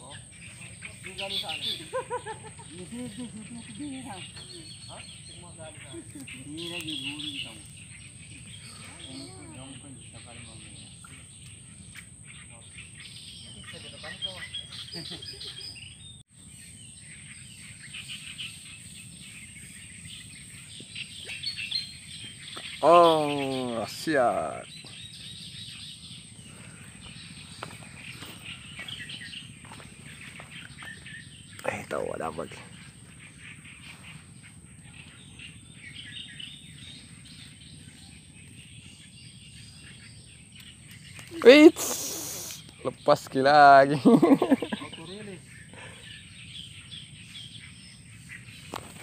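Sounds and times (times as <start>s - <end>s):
bird chirps: 0.0s - 49.0s
insect calls: 0.0s - 49.0s
high insect buzz: 40.6s - 45.6s.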